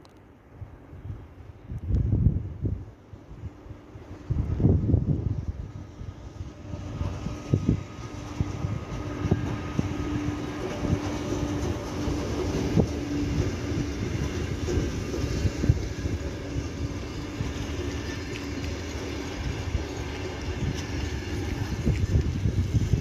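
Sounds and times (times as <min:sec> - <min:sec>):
train wheels rumbling on rail: 0:00.6 - 0:23.0
wheels knocking over rail joints: 0:07.0 - 0:23.0.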